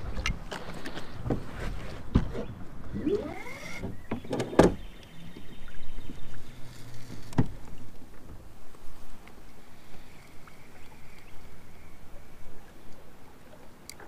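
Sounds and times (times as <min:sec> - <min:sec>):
fishing reel whirring: 0:03.0 - 0:03.8
creaking squeak: 0:03.0 - 0:04.8.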